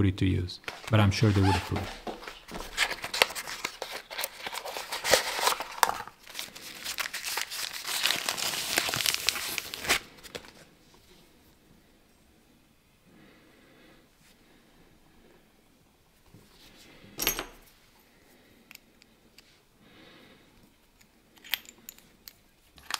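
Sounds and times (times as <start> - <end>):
wrapping paper crinkling: 0.8 - 10.7.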